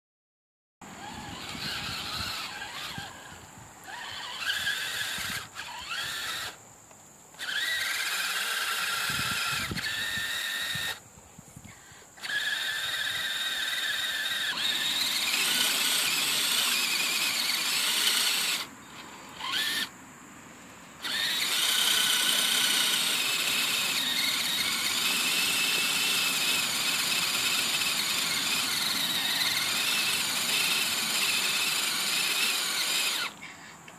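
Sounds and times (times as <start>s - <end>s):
electric motor and gearbox whining: 0.8s - 11.0s, 11.6s - 19.9s, 21.0s - 33.9s.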